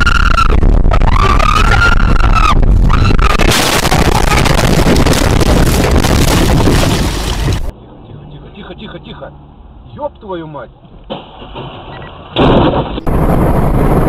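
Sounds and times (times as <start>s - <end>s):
person screaming: 0.0s - 3.4s
road rumble: 0.0s - 14.0s
car crashing: 3.4s - 7.7s, 11.0s - 13.5s
windshield shattering: 3.4s - 7.7s, 11.1s - 13.1s.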